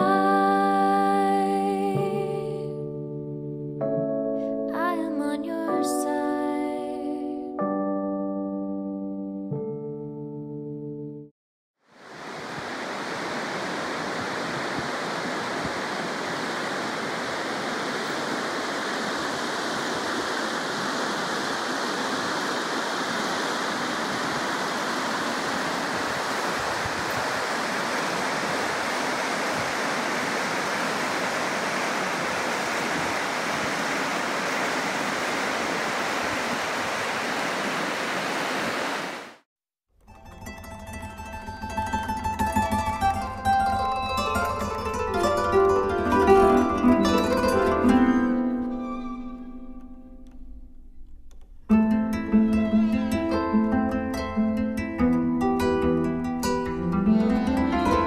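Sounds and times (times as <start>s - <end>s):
river water rushing: 11.9s - 39.4s.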